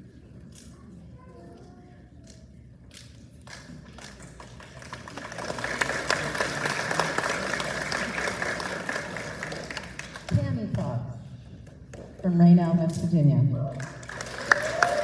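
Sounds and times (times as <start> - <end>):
audience clapping: 3.4 - 10.6, 13.7 - 15.0.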